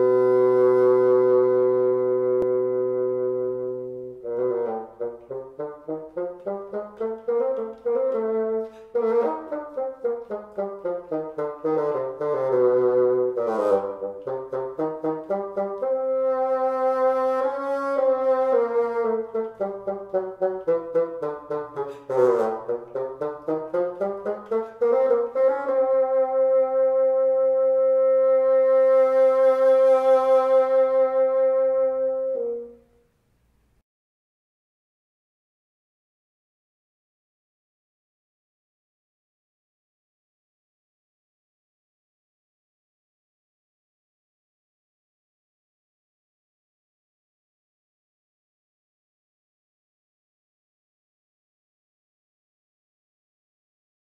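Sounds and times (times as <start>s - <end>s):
bassoon ensemble playing: 0.0s - 32.8s.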